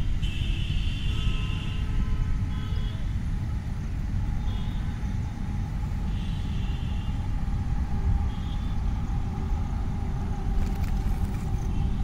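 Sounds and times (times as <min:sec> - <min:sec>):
distant city traffic: 0:00.0 - 0:12.0
wind buffeting microphone: 0:07.1 - 0:12.0.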